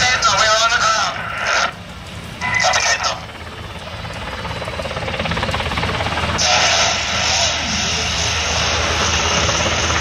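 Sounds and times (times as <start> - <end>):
helicopter rotor beat and engine drone: 0.0 - 10.0
loud rushing noise: 6.4 - 10.0.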